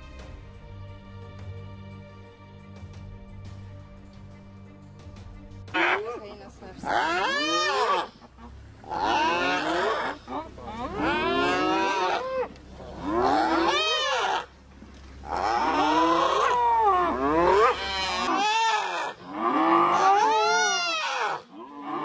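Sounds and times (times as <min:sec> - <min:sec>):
animal bawling: 0:05.8 - 0:06.2, 0:06.8 - 0:14.6, 0:15.2 - 0:22.0.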